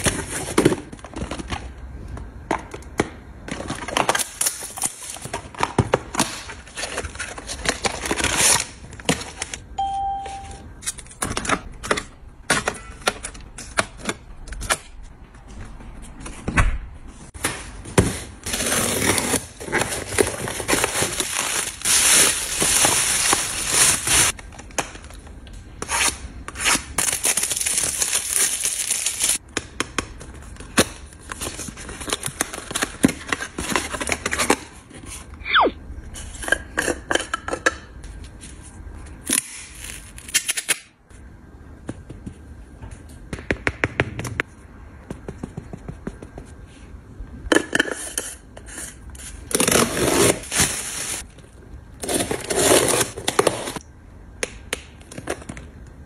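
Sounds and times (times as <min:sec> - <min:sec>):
cellophane crinkling and tearing: 0:03.5 - 0:09.6, 0:18.4 - 0:24.4, 0:25.9 - 0:29.4, 0:49.5 - 0:51.3, 0:52.0 - 0:53.8.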